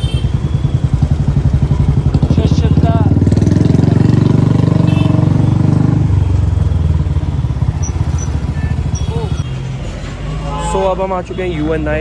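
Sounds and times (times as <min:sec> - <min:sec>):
motorcycle engine running: 0:00.0 - 0:09.5.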